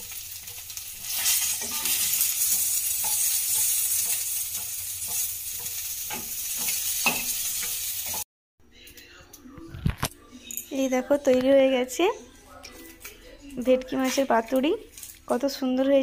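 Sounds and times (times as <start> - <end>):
spatula scraping pan: 0.0 - 8.2
fish sizzling in hot oil: 0.0 - 8.3.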